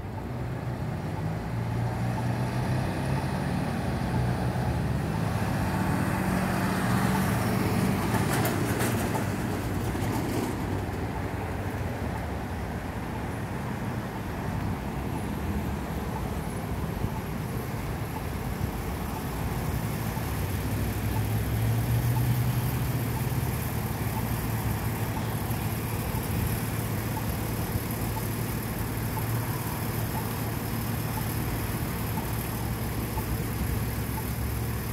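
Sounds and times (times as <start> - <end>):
cars idling and driving past: 0.0 - 34.9
vehicle passing close: 1.4 - 11.0.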